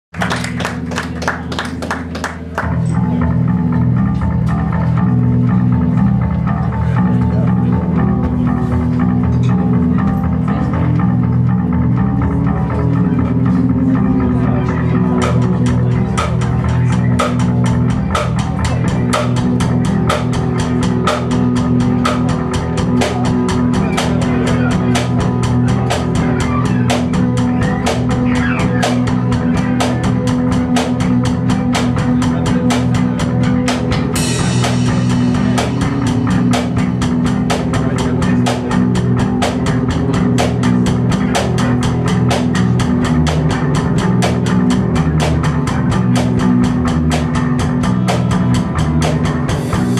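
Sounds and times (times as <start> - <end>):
droning electric guitar: 0.2 - 49.9
drum kit fast beat: 14.3 - 49.9.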